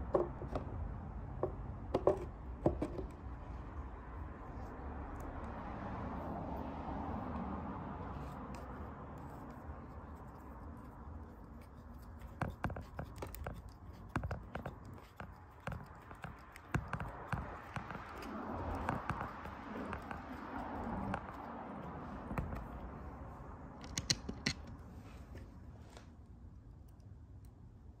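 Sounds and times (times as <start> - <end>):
small metal clicks and scrapes: 8.2 - 22.9, 23.8 - 24.9.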